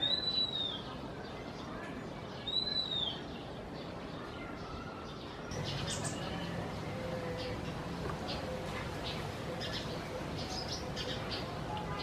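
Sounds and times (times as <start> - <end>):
robin whistled song: 0.0 - 1.0, 2.4 - 3.4.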